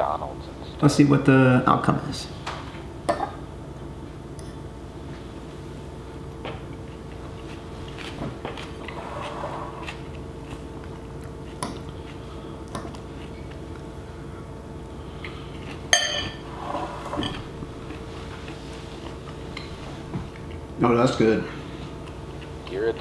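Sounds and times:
fork clinking in a bowl: 15.9s - 16.4s.

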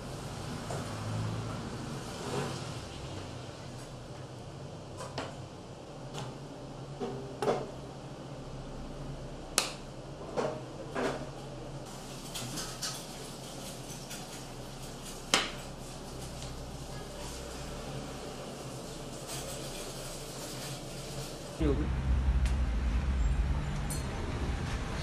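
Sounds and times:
cutlery and dishes clinking: 12.2s - 15.6s
low steady hum: 21.6s - 25.0s.

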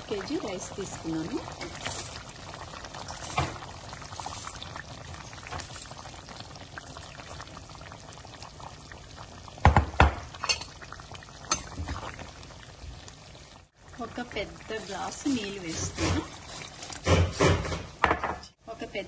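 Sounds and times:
liquid bubbling: 0.0s - 18.0s
rice pouring into a pot: 1.6s - 7.6s.

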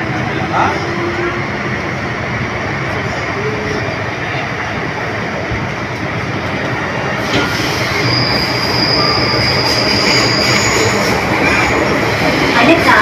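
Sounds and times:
rumble of wheels on rail: 0.0s - 13.0s
high wheel squeal: 7.2s - 11.9s.

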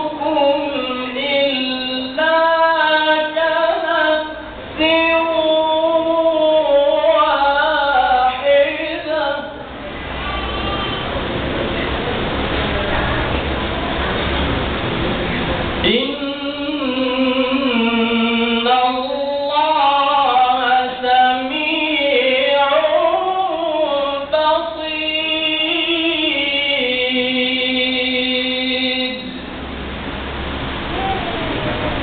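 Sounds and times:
man reciting melodically into microphone: 0.0s - 9.7s, 15.8s - 29.5s.

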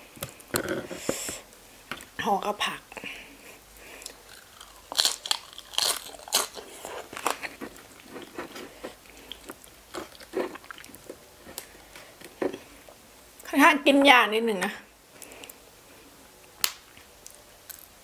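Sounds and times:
crunchy chewing: 4.0s - 12.7s.

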